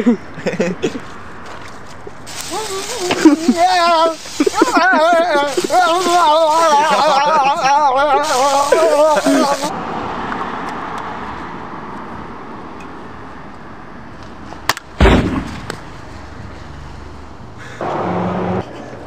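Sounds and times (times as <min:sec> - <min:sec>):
loud gunshot-like bang: 0:15.0 - 0:15.7.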